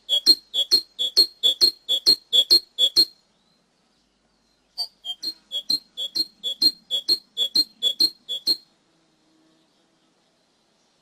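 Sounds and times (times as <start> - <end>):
bird singing high notes: 0.0 - 3.2, 4.8 - 8.6.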